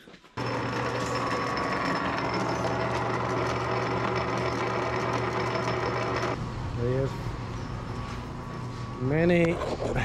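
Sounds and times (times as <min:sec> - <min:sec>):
metal lathe running: 0:00.4 - 0:06.4.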